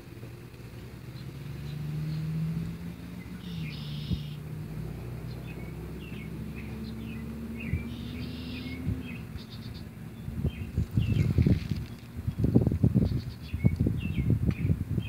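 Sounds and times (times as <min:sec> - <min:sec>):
loud low rumbling: 0:00.0 - 0:15.0
small birds chirping: 0:00.0 - 0:15.0.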